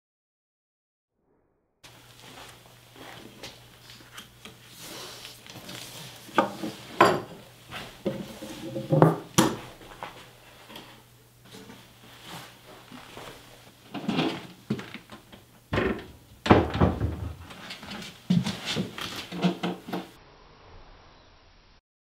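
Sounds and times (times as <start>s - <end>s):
rubbing and handling: 1.9s - 9.0s
wooden knocks: 15.7s - 17.6s.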